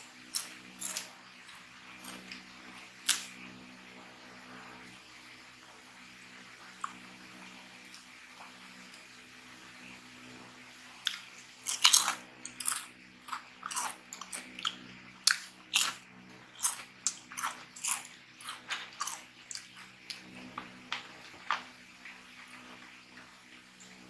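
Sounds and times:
potato chips being crunched: 11.1s - 14.4s.

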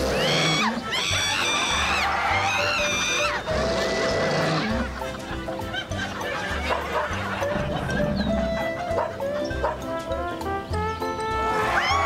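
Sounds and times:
music with pulsing bass: 3.2s - 12.0s.

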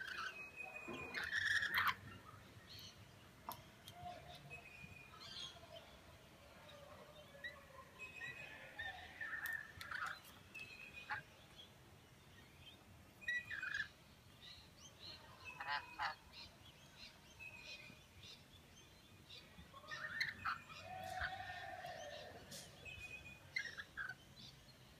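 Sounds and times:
parrots screeching and chattering: 0.0s - 2.1s, 8.2s - 10.3s, 10.9s - 11.3s, 13.2s - 14.0s, 15.5s - 16.2s, 19.8s - 22.0s, 23.6s - 24.2s.

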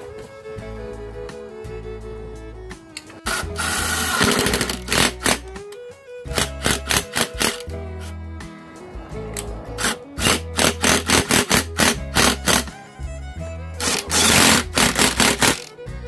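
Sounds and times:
background music with steady beat: 0.0s - 16.0s
impact driver rattling: 3.1s - 5.6s, 6.3s - 7.8s, 9.8s - 12.8s, 13.8s - 15.7s.

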